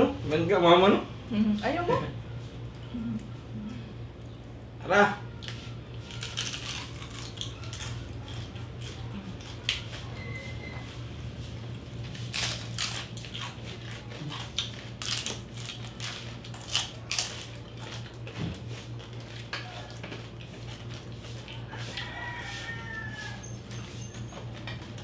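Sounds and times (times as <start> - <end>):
crunching and chewing: 5.3 - 10.6, 11.4 - 25.0.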